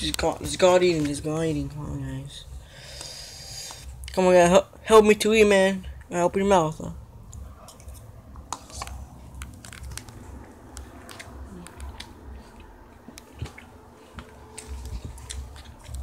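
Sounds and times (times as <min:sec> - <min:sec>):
person chewing crunchy cereal: 0:07.2 - 0:16.0.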